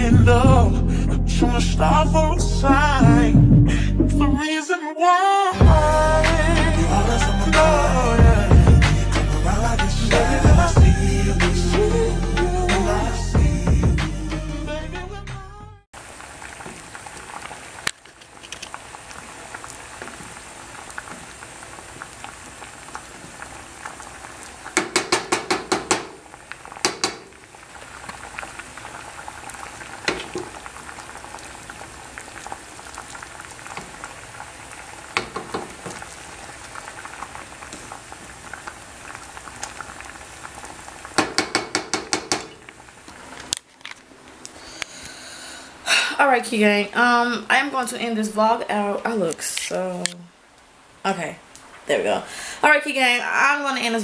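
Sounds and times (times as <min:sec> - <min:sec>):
berries boiling in water: 0:16.0 - 0:54.0
wooden spoon tapping pan: 0:24.8 - 0:26.2, 0:26.8 - 0:27.3, 0:35.2 - 0:36.0, 0:41.2 - 0:42.7.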